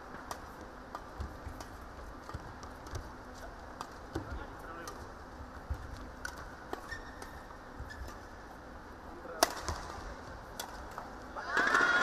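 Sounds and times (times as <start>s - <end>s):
racket hitting shuttlecock: 9.4s - 12.0s.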